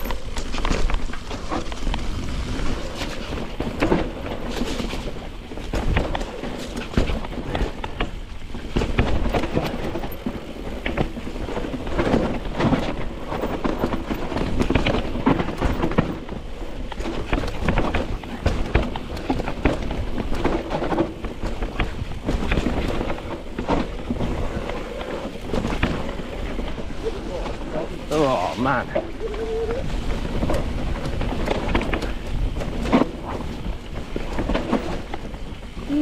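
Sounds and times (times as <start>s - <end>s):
bike rattling and knocking: 0.0s - 36.0s
tyres crunching over dirt: 0.0s - 36.0s
wind buffeting microphone: 0.0s - 36.0s.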